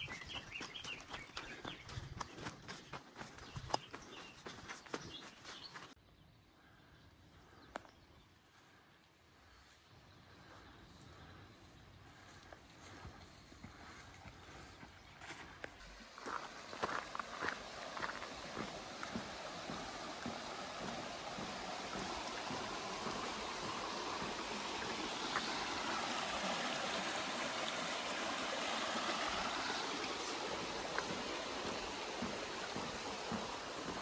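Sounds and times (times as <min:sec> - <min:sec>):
stream splashing over stones: 0:15.8 - 0:34.0.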